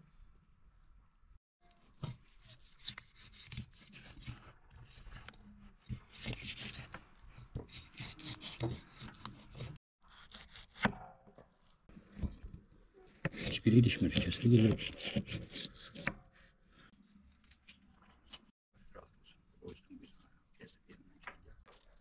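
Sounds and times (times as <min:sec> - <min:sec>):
scraping and rubbing: 0:13.1 - 0:18.5.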